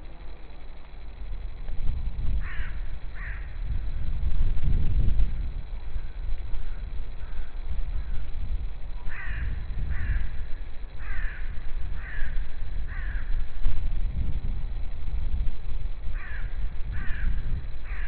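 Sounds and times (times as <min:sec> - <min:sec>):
low rumble: 0:01.0 - 0:18.0
crow cawing: 0:02.4 - 0:03.6, 0:06.7 - 0:08.3, 0:09.0 - 0:13.5, 0:16.1 - 0:18.0.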